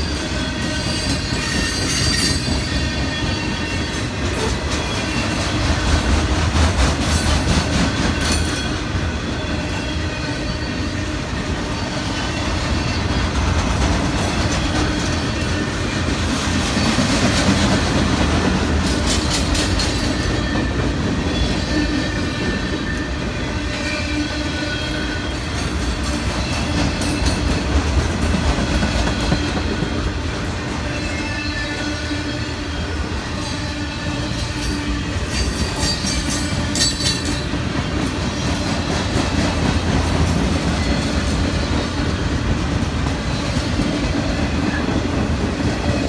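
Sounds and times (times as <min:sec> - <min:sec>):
high wheel squeal: 0:00.0 - 0:05.9, 0:08.2 - 0:13.4, 0:19.8 - 0:25.6, 0:28.8 - 0:39.2
train clickety-clack: 0:00.0 - 0:46.0
train wheels rumbling on rail: 0:00.0 - 0:46.0.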